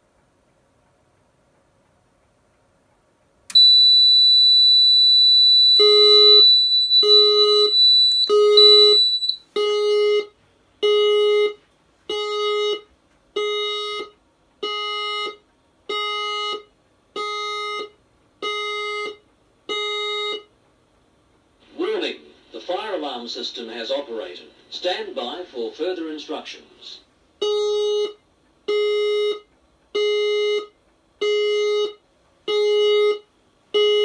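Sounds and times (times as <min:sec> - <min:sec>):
pulsed alarm tone: 0:03.5 - 0:10.3
steady high-pitched beep: 0:03.5 - 0:10.3.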